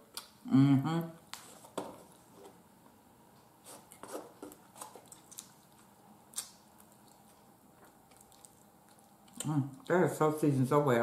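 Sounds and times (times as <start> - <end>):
person chewing with mouth clicks: 4.6 - 10.0.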